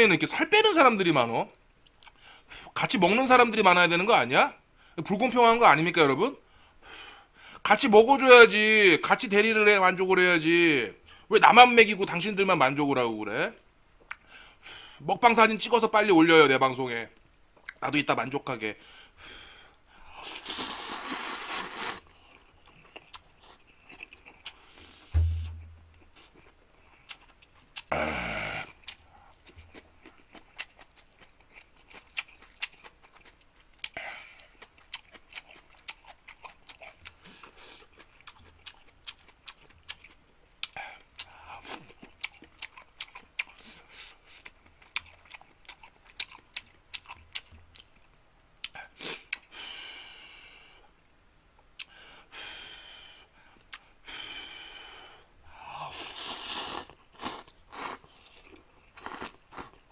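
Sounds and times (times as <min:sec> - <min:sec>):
man slurping noodles: 0:20.2 - 0:22.0, 0:55.9 - 0:58.0
chewing: 0:21.7 - 0:25.1, 0:26.0 - 0:27.9, 0:28.6 - 0:49.5, 0:56.0 - 0:59.8
low thump: 0:25.2 - 0:26.0.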